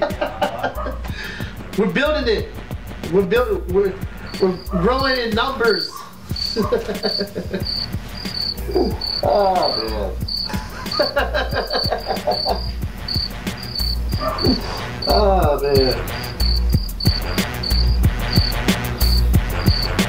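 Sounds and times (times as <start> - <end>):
laughter: 0.0 - 1.3, 6.4 - 7.8, 10.4 - 12.7
man talking: 1.7 - 6.0, 8.6 - 10.2, 14.5 - 16.2
insect chirping: 4.1 - 20.0.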